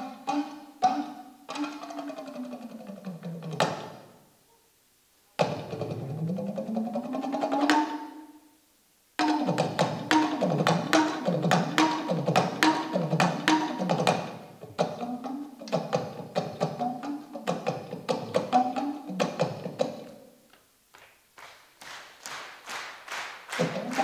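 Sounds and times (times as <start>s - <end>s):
talking drum pitch swooping: 9.2s - 20.2s, 23.6s - 24.0s.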